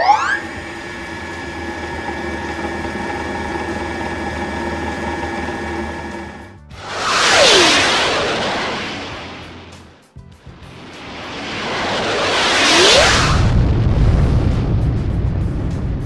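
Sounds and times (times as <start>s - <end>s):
hum of held tones: 0.0s - 5.8s
loud whoosh: 6.7s - 10.0s, 10.6s - 14.6s.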